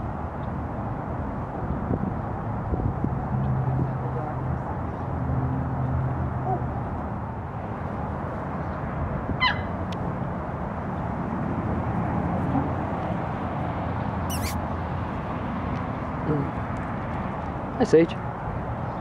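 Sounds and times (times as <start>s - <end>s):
high animal calls: 9.4s - 9.7s, 14.3s - 14.6s.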